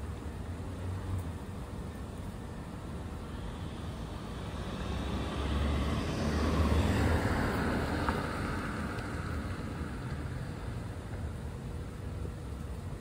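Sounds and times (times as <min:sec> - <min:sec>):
vehicle passing by: 0:03.4 - 0:10.8.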